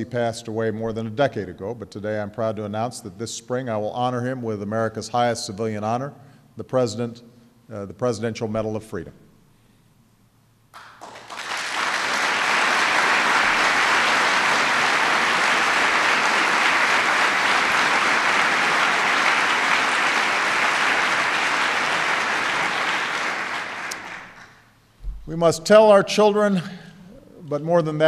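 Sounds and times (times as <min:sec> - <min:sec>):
audience applauding: 0:10.8 - 0:24.7.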